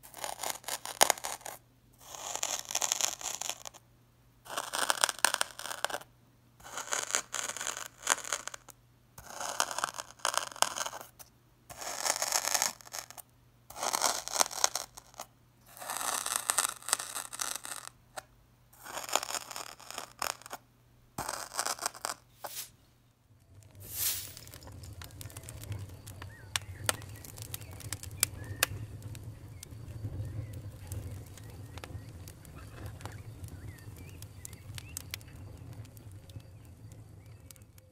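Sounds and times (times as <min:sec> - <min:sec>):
metal tool scraping packed sand: 0:00.0 - 0:03.7, 0:21.2 - 0:22.8, 0:23.8 - 0:25.1.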